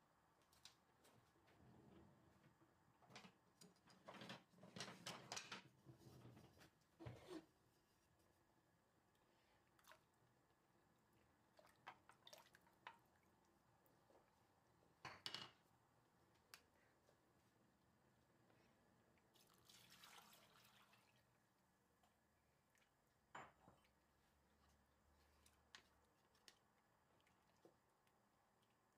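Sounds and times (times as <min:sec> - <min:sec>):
liquid poured through sieve: 0:19.3 - 0:21.4.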